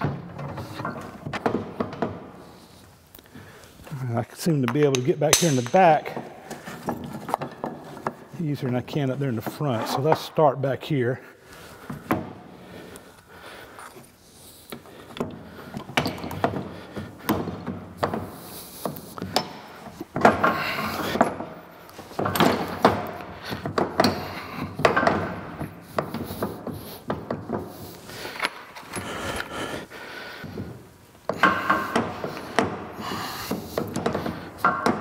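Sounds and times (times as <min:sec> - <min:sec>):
wood and metal clunks and knocks: 0:00.0 - 0:02.5, 0:04.7 - 0:08.3, 0:15.1 - 0:27.9, 0:30.4 - 0:35.0.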